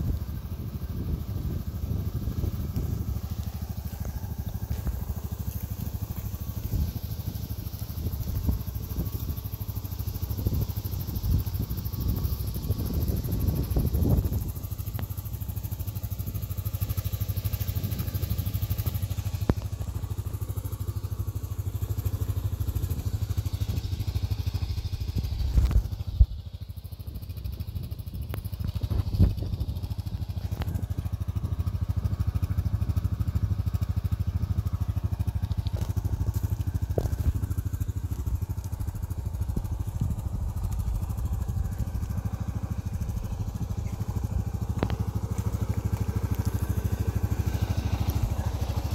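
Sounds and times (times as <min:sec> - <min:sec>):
atv engine idling: 0:00.0 - 0:48.9.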